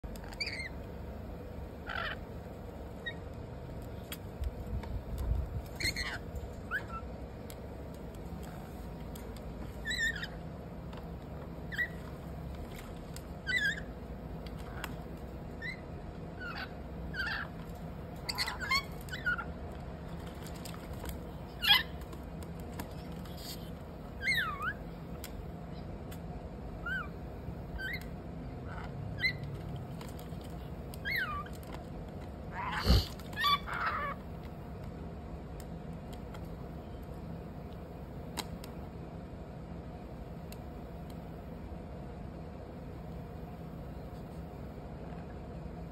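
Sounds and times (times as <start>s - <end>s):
lorikeets chirping: 0.2s - 0.8s, 1.8s - 2.3s, 5.8s - 7.1s, 9.8s - 10.4s, 11.7s - 12.0s, 13.4s - 13.9s, 16.4s - 17.6s, 18.2s - 19.5s, 24.2s - 24.9s, 26.8s - 29.5s, 31.0s - 31.5s, 32.5s - 34.2s.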